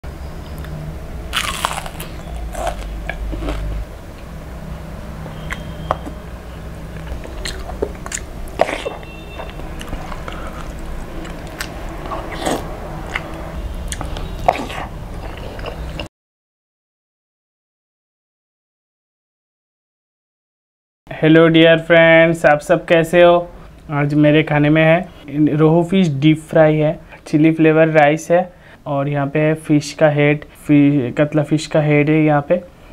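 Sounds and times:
steady low hum: 0.0 - 16.1
crunching and chewing food: 0.6 - 3.8, 6.9 - 16.1.

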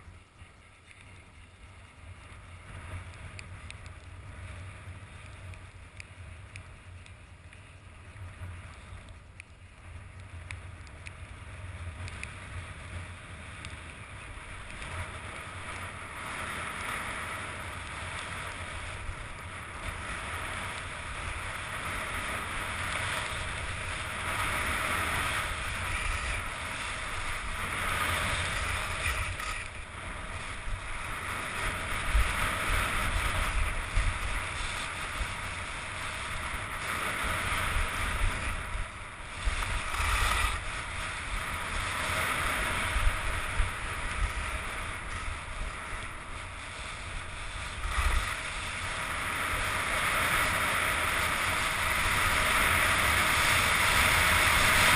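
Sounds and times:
wind rumble on microphone: 0.0 - 54.9
skis hissing on snow: 39.4 - 54.9.

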